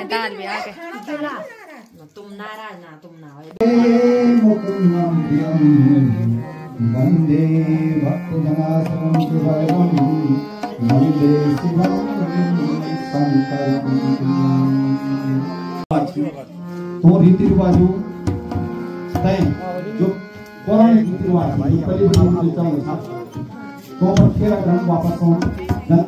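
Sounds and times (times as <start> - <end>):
melody of held notes: 3.7 - 26.0
hand-drum strokes: 8.6 - 12.2, 17.2 - 20.2, 22.0 - 26.0.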